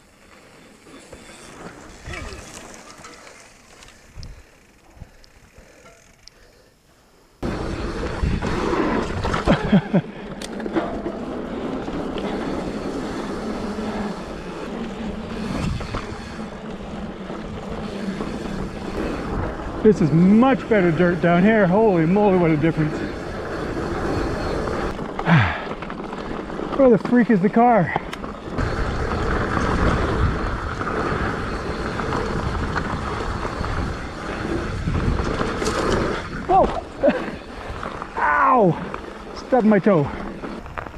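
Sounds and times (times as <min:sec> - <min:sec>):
bike tyres on dirt and gravel: 0:00.0 - 0:40.9
wind on microphone: 0:28.6 - 0:36.7.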